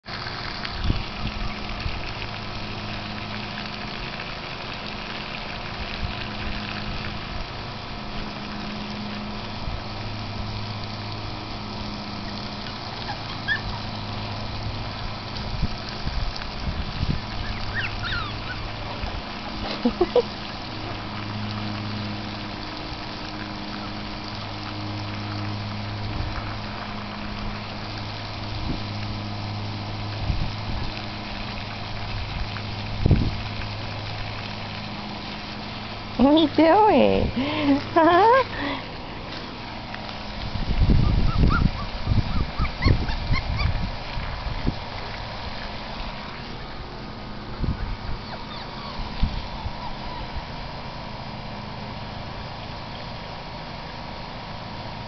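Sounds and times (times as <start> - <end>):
hose water splashing on dirt: 0.0 - 55.0
short squeaky calls: 13.1 - 13.8, 17.4 - 18.7, 41.3 - 43.7, 48.2 - 50.4.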